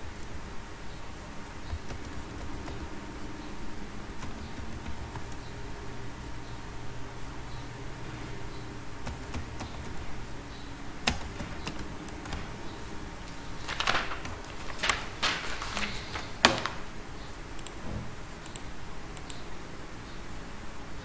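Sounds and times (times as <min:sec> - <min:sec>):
low steady hum: 0:00.0 - 0:21.0
keyboard keys tapping: 0:01.5 - 0:05.8, 0:09.0 - 0:16.9
sharp clicks: 0:11.0 - 0:12.6, 0:17.6 - 0:17.8, 0:18.4 - 0:19.5.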